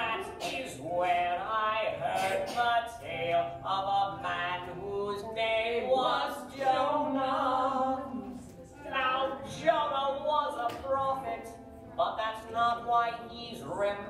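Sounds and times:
group of voices singing: 0.0s - 9.8s.

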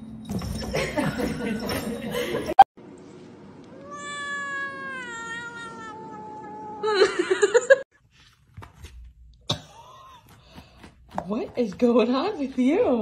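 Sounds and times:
cat yowling: 3.8s - 7.0s.

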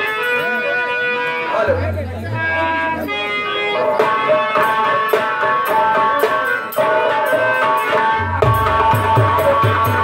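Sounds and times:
held notes: 0.0s - 10.0s
jingling percussion beat: 0.0s - 10.0s.

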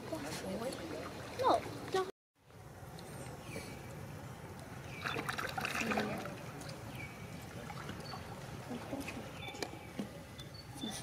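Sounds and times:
water splashing and trickling: 0.0s - 2.1s, 3.9s - 10.3s.

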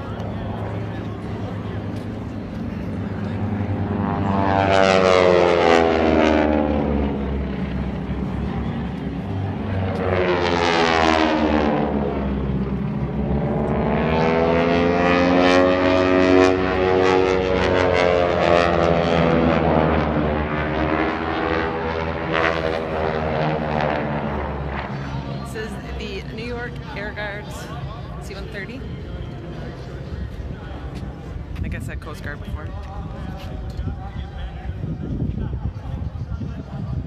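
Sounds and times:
propeller airplane flying overhead: 0.0s - 37.0s.

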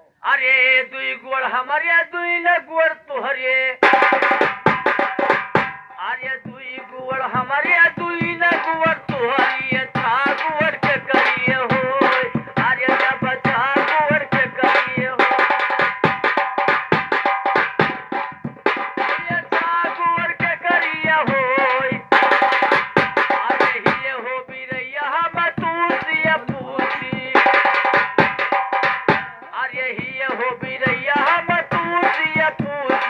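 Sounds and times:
quick hand-drum strokes: 3.8s - 33.0s
person singing ornamented folk song: 5.9s - 15.6s, 23.3s - 27.8s.

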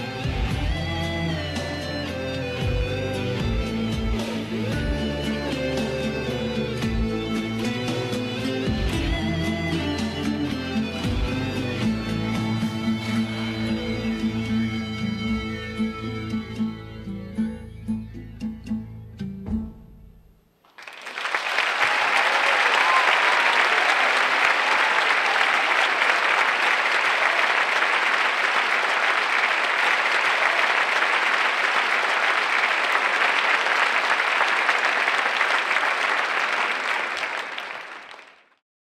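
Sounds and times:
audience applauding: 20.6s - 38.6s.

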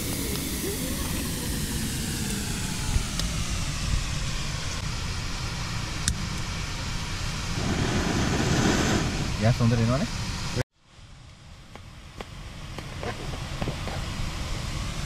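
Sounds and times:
steady rushing noise: 0.0s - 10.6s.

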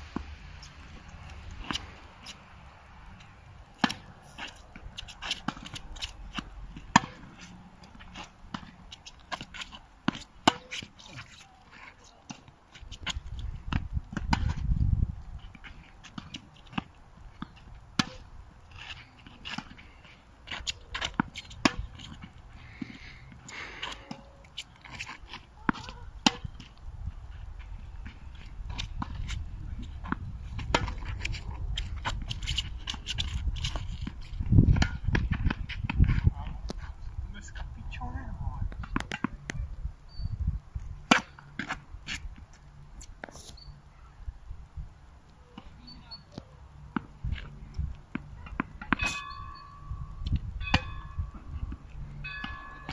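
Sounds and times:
rackets striking tennis ball: 3.2s - 14.7s, 15.4s - 36.8s, 38.7s - 39.6s, 41.0s - 42.5s, 45.5s - 52.9s
wind rumbling on microphone: 12.8s - 15.7s, 25.9s - 41.1s, 49.2s - 52.9s.

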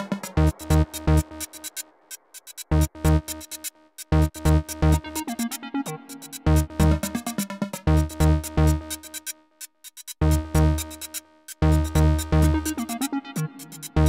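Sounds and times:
electronic dance music: 0.0s - 9.2s.

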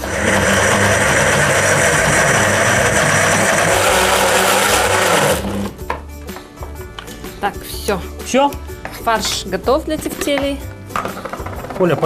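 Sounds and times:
electric blender running: 0.0s - 5.8s.

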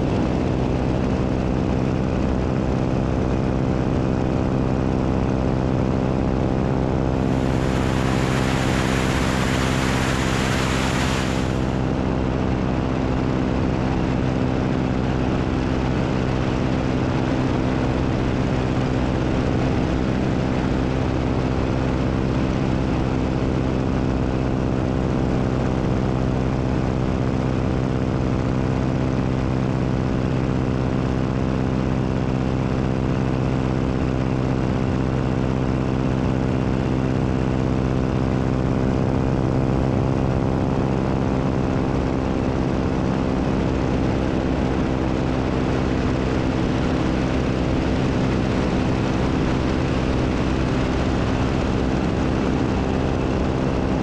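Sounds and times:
propeller engine drone: 0.0s - 54.0s
rushing air hiss: 7.2s - 11.9s.

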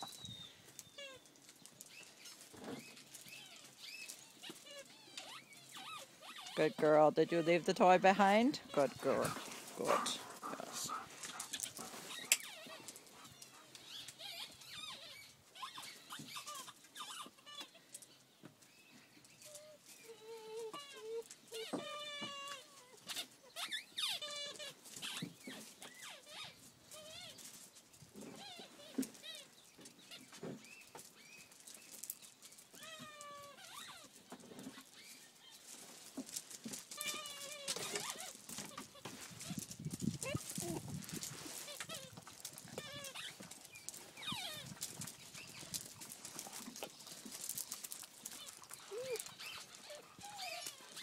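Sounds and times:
puppies squeaking and whimpering: 0.0s - 18.2s, 19.4s - 51.0s
light scuffling: 6.0s - 14.2s, 34.4s - 51.0s.

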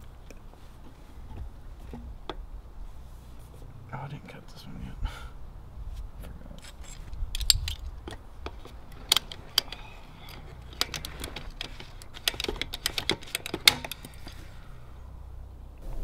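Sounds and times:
pipe cutter ratchet clicking: 8.5s - 14.3s.

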